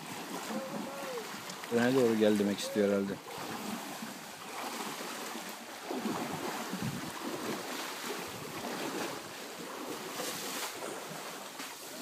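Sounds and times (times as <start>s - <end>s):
elephants splashing through water: 0.0s - 12.0s
wind buffeting microphone: 6.0s - 7.6s, 8.2s - 9.4s.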